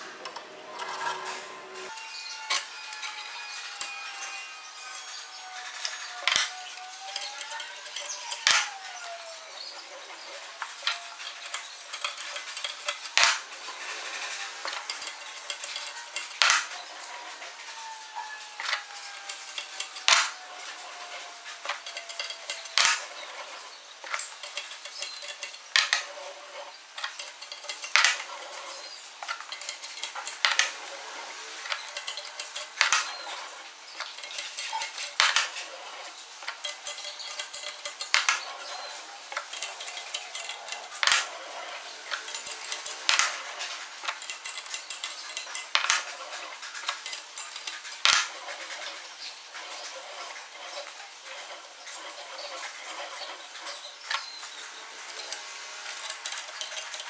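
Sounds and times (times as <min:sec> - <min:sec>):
metallic scraping and creaking: 0:00.0 - 0:57.0
faint sliding squeal: 0:00.1 - 0:47.8, 0:49.6 - 0:57.0.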